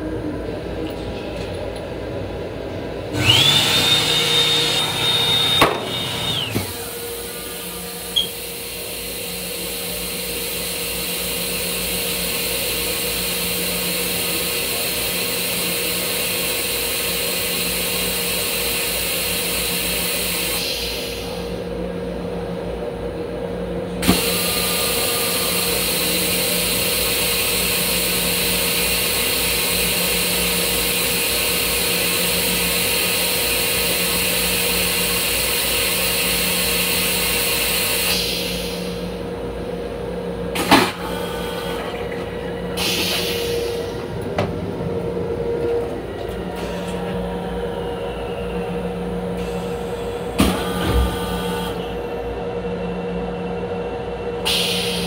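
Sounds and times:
mechanical hum: 0.0s - 55.0s
toilet flush whoosh with whine: 3.2s - 21.7s, 24.0s - 39.2s, 40.6s - 44.1s, 54.4s - 55.0s.

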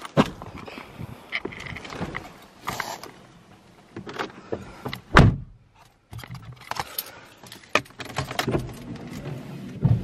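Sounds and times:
car door slamming: 5.0s - 5.6s.

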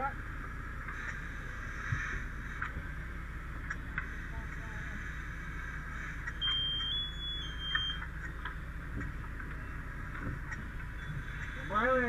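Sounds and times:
steady low rumble: 0.0s - 12.0s
high-pitched electronic beep: 6.4s - 8.0s.

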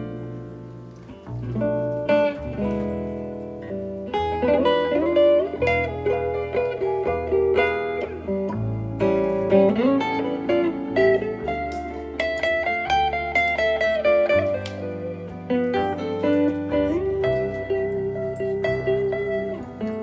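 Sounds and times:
double bass low notes: 0.0s - 13.8s
electric guitar melody: 0.0s - 20.0s.

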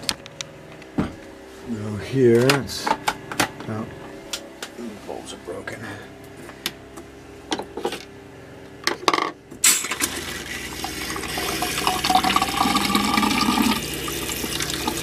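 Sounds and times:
water running into a sink: 9.7s - 15.0s.

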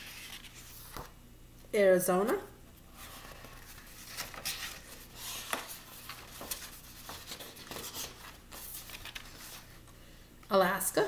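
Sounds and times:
paper pages rustling: 0.0s - 1.2s, 2.9s - 10.0s.

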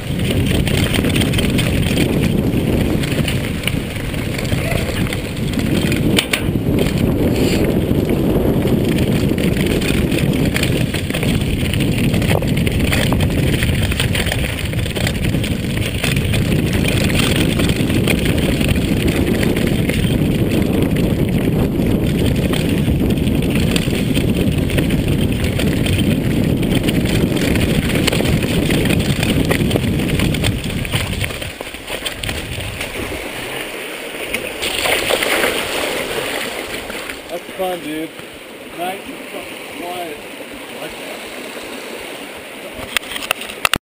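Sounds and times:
bike rattling and knocking: 0.0s - 33.1s
bike tyres on dirt: 0.0s - 37.3s
wind buffeting microphone: 0.0s - 43.8s.

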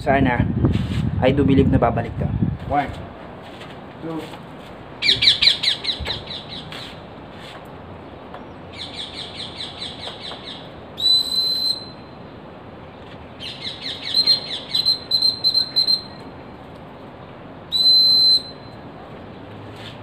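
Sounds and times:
long steady whistle: 11.0s - 12.2s, 14.0s - 16.3s, 17.7s - 18.8s.

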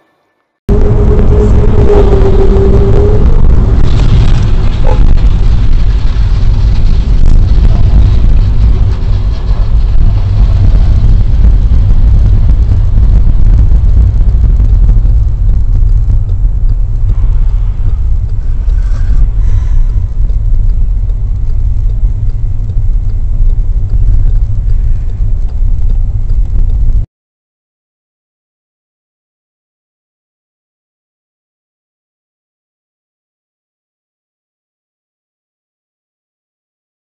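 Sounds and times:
car driving rumble: 0.7s - 27.1s.

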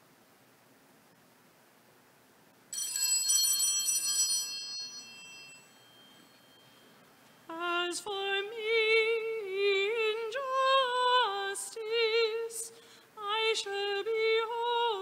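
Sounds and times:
bell ringing: 2.8s - 7.0s
faint hiss: 6.1s - 15.0s.

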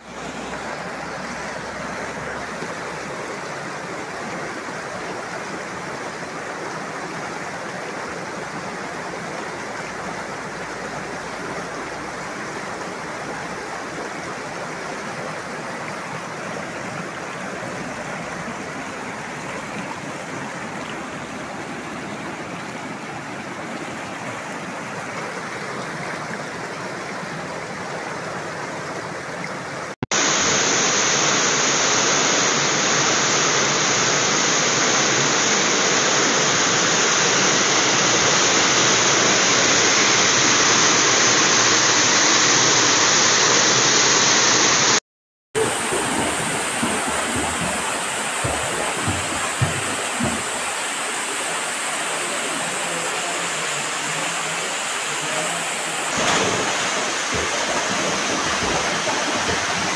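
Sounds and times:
river rapids rushing over boulders: 0.0s - 45.0s, 45.6s - 59.9s
water pouring down a cascade: 0.0s - 45.0s, 45.6s - 59.9s.

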